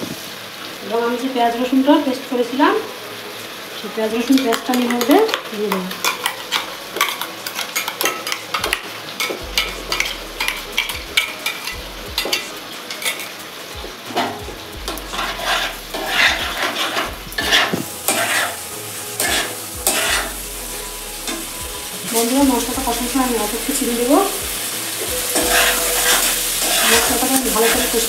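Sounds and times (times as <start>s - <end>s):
paste frying and sizzling: 0.0s - 28.0s
metal spatula scraping pan: 4.3s - 13.4s, 15.2s - 18.6s, 19.2s - 20.4s, 23.2s - 28.0s.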